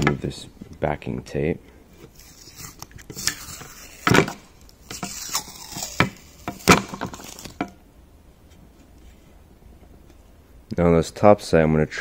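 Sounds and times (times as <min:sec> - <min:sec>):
tape being peeled off: 0:02.0 - 0:07.7.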